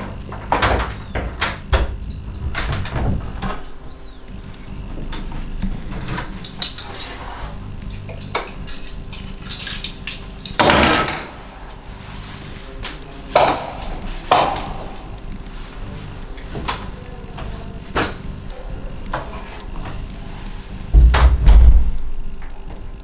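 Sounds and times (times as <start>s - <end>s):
low room hum: 0.0s - 23.0s
small hard objects clinking: 8.0s - 10.6s.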